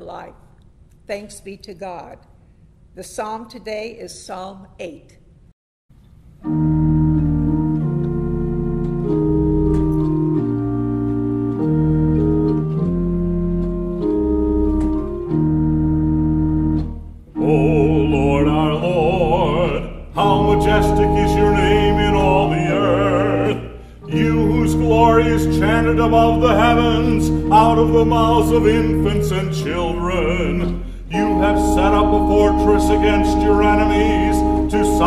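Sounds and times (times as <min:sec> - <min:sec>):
pipe organ chords: 0:06.4 - 0:35.0
man singing with vibrato: 0:17.4 - 0:35.0.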